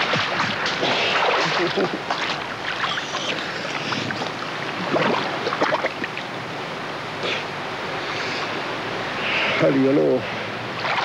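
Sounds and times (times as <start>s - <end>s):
water splashing and sloshing: 0.0s - 6.4s, 10.7s - 11.0s.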